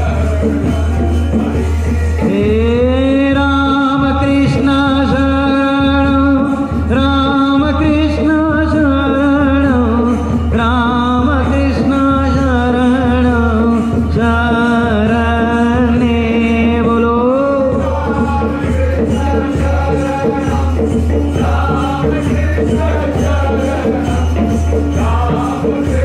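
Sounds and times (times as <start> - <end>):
sustained accompaniment: 0.0 - 26.0
voices singing a devotional chant: 0.0 - 26.0.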